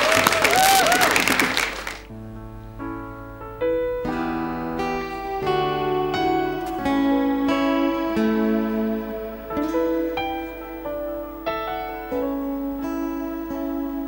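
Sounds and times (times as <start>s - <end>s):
audience applause: 0.0s - 2.1s
keyboard playing slow chords: 2.0s - 14.0s.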